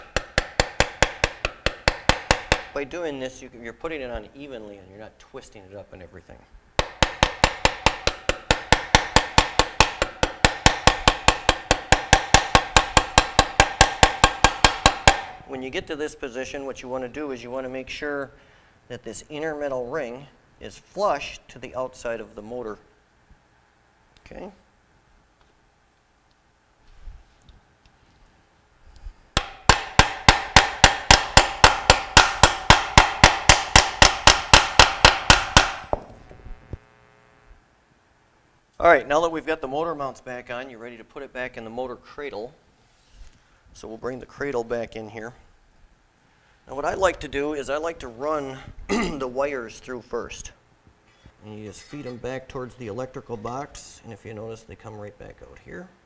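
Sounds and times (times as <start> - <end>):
rapid hammer taps on metal: 0.0 - 2.8, 6.8 - 15.4, 29.4 - 36.1.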